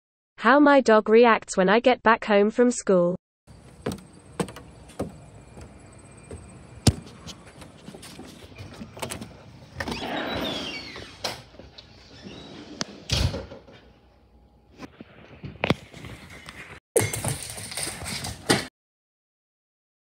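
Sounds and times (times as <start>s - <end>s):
footsteps on wooden deck: 3.5s - 9.8s
door rattling and scraping: 3.5s - 13.9s, 17.1s - 18.7s
heavy low thump: 3.6s - 7.2s.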